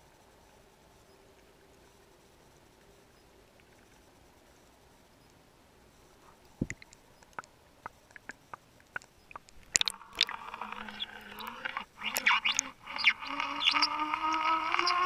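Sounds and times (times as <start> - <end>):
underwater clicks and crackles: 2.7 - 5.4, 6.2 - 15.0
water splashing and sloshing: 6.2 - 15.0
low hum rising in pitch: 9.9 - 15.0.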